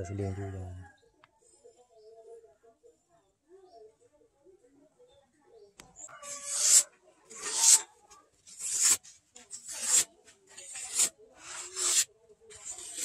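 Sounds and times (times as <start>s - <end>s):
blade slicing paper: 6.4s - 7.8s, 8.5s - 13.0s.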